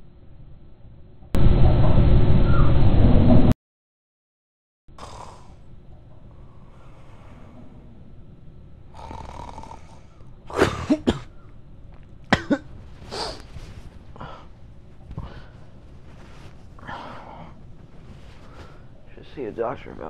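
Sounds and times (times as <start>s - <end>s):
person coughing: 10.5s - 11.4s, 12.3s - 13.4s.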